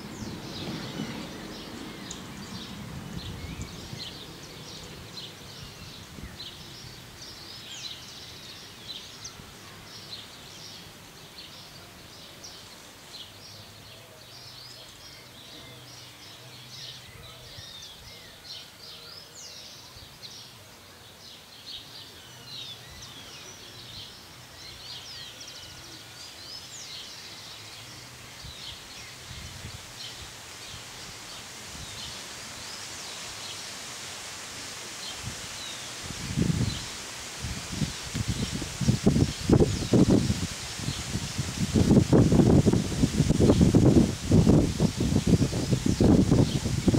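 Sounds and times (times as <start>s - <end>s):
distant diesel locomotive drone: 0.0s - 5.4s
leaves rustling in wind: 0.0s - 46.9s
small birds chirping: 0.0s - 46.9s.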